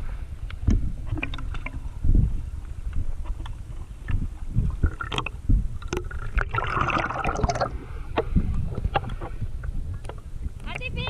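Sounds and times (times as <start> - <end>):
sea water sloshing and splashing: 3.1 - 10.6.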